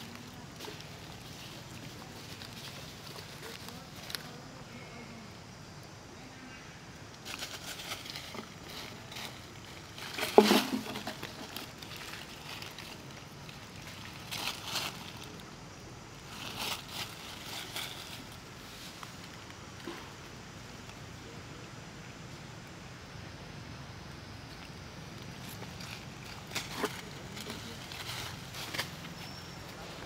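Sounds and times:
dry leaves crackling and rustling: 0.0s - 5.3s, 7.1s - 19.8s, 24.4s - 30.0s.

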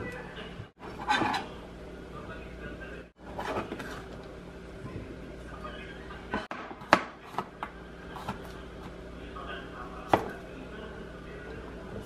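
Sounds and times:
steady low hum: 0.0s - 12.0s
knife chopping on plastic board: 6.5s - 8.5s, 10.1s - 10.4s.

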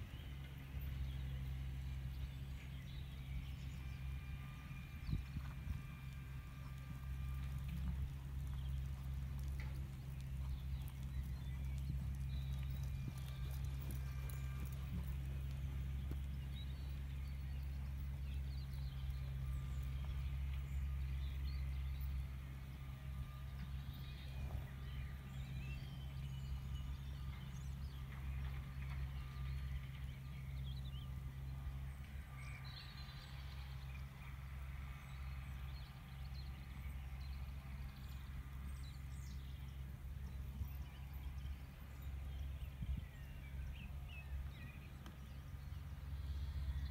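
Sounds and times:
steady low rumble: 0.0s - 46.9s
horse hoofbeats on sand: 4.6s - 22.0s.

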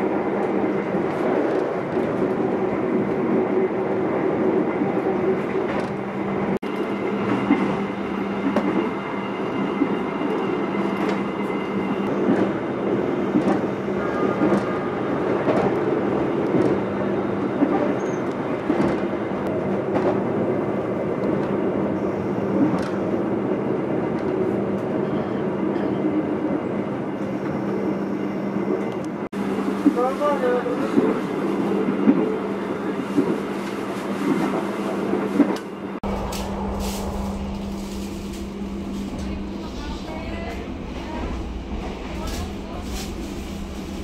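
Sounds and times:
train wheels rumbling on rails: 0.0s - 27.8s, 28.6s - 44.0s
low hum: 36.0s - 40.5s.

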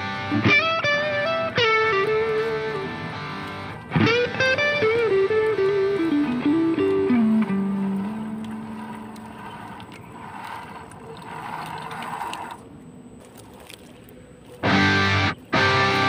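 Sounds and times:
held guitar note: 0.0s - 9.7s.

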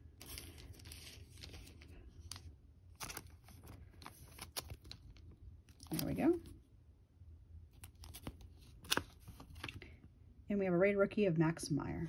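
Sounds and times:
thin plastic rustling: 0.0s - 6.5s.

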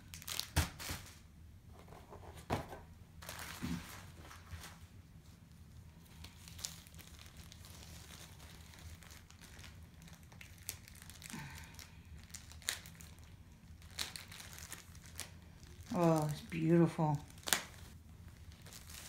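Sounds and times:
plastic packaging crinkling: 0.0s - 1.2s, 3.2s - 19.0s
sharp crackles: 6.2s - 19.0s.

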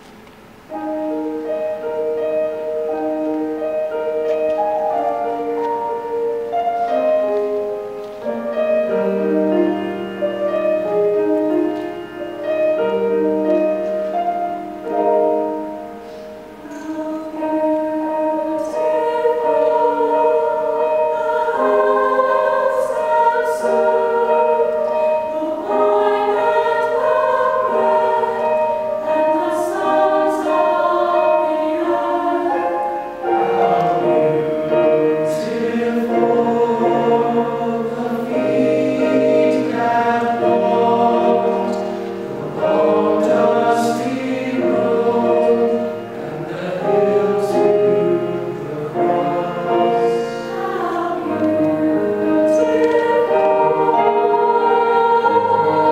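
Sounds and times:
mixed choir singing in harmony: 0.7s - 55.9s.

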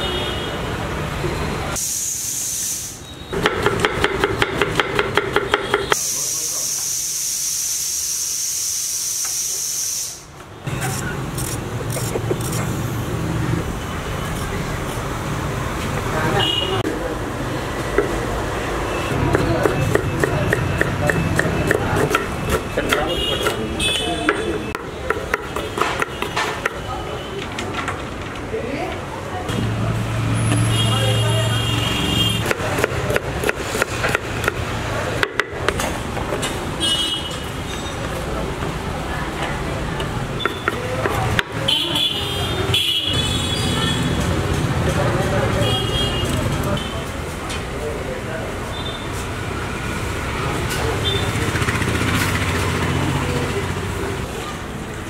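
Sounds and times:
knife chopping on wooden board: 3.4s - 5.9s, 19.2s - 26.9s, 32.4s - 34.6s.

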